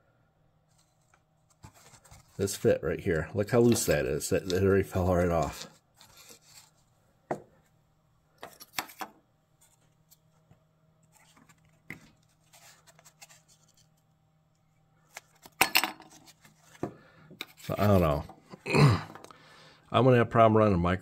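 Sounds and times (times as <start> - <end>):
handling paper and metal parts: 0.7 - 6.9, 8.4 - 14.1, 15.1 - 18.3.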